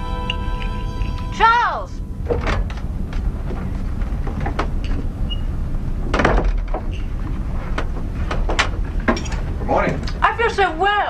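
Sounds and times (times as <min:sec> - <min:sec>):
steady low rumble: 0:00.0 - 0:11.0
wooden door clicks and knocks: 0:06.1 - 0:06.9.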